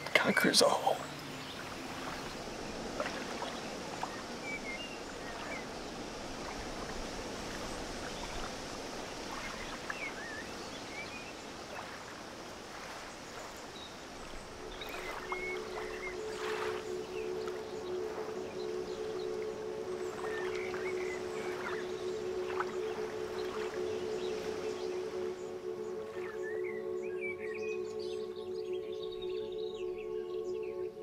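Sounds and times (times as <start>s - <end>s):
faint bird chirps: 12.8s - 19.4s.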